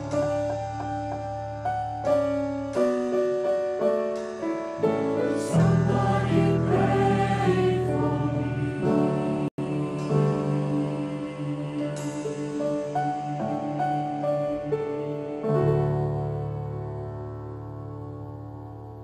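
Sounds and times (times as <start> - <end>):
piano: 0.0 - 19.0
choir singing a hymn: 4.9 - 16.9.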